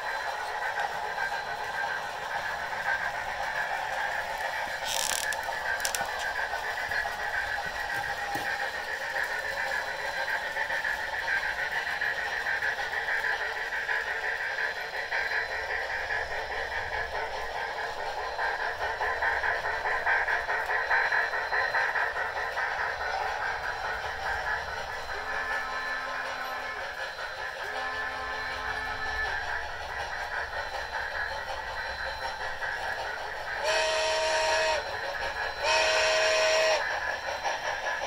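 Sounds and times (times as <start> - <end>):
model train steam engine sounds: 0.0 - 38.0.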